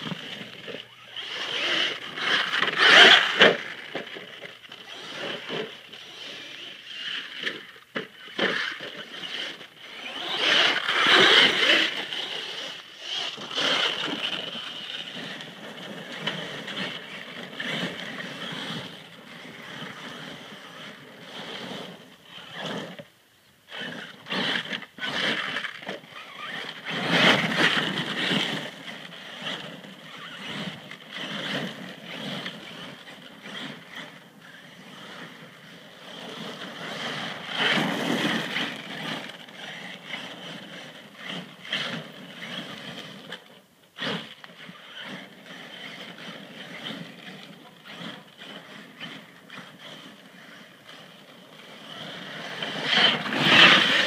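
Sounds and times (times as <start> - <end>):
electric motor whining: 0.0 - 7.6, 8.5 - 15.6.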